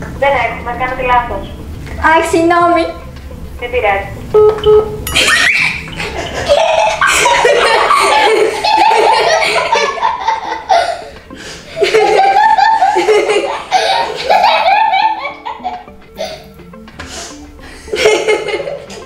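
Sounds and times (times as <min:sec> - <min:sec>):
girl laughing: 0:05.1 - 0:11.1, 0:11.7 - 0:16.6, 0:17.9 - 0:19.0.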